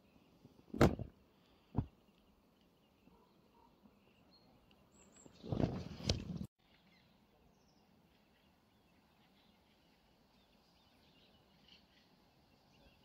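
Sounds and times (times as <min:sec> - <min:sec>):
faint bird chirps: 0:01.4 - 0:05.8, 0:06.6 - 0:13.0.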